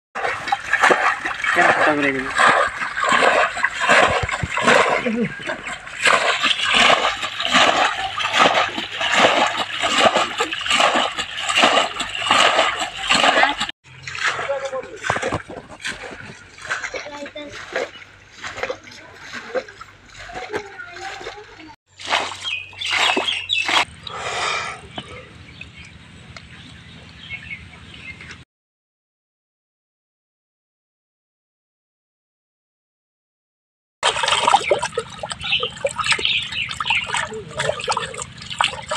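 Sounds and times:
water scooping and splashing: 0.2s - 26.0s, 34.0s - 38.9s
birds chirping: 1.4s - 9.8s, 22.3s - 28.4s, 34.4s - 38.9s.

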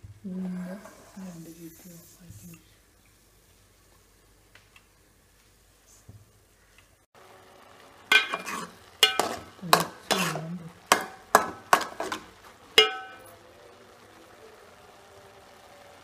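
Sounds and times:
metal spoon scraping a pot: 8.1s - 13.2s.

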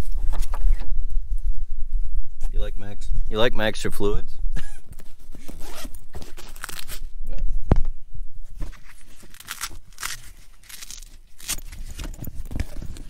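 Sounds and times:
plastic packaging crinkling: 5.6s - 7.0s, 8.7s - 13.0s
plastic packaging snapping: 9.2s - 12.0s.

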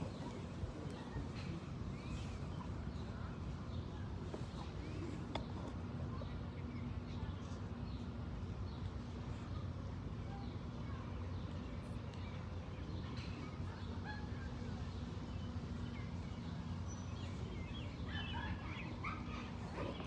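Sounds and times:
steady low hum: 0.0s - 20.0s
bird calls: 12.2s - 20.0s.

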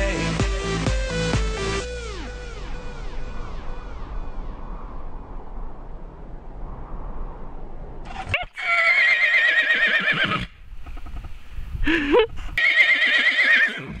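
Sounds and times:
horse whinnying: 8.1s - 10.6s, 12.6s - 14.0s.

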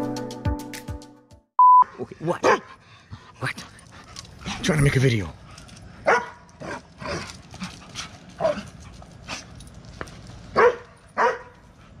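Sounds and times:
dogs barking and yipping: 4.1s - 12.0s.

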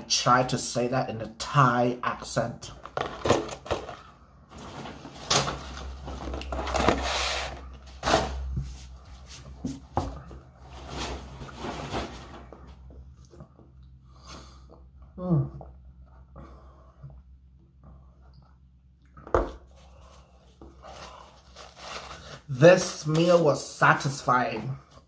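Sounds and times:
paper packaging rustling: 2.7s - 8.9s, 20.9s - 23.7s.

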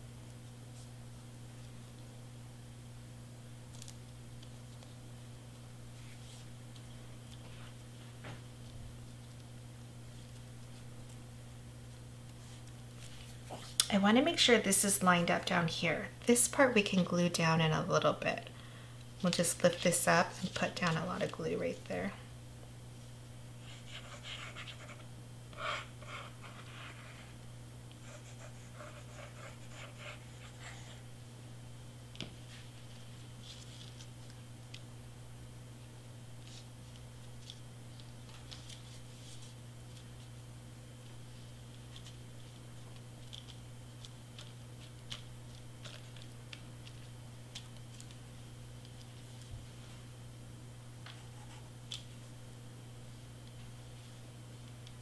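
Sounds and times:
steady low hum: 0.0s - 55.0s
paper rustling: 12.3s - 13.8s, 19.2s - 21.8s, 32.3s - 34.8s, 36.4s - 40.4s, 41.0s - 48.2s.

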